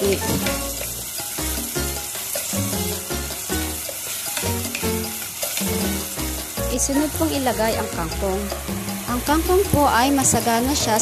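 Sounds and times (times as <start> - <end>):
food sizzling in hot oil: 0.0 - 11.0
wooden spatula stirring: 3.9 - 5.9.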